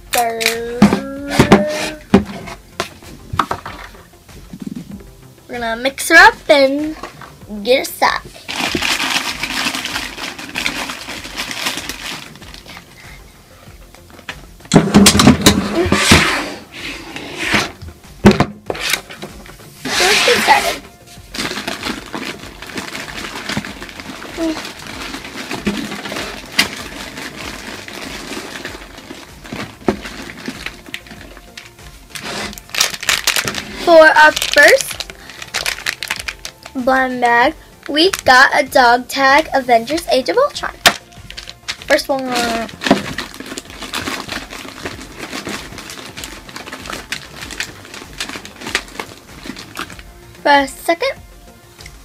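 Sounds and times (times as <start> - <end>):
packets rustling and crinkling: 8.1 - 13.3, 18.7 - 50.2
items clicking together: 21.4 - 36.8.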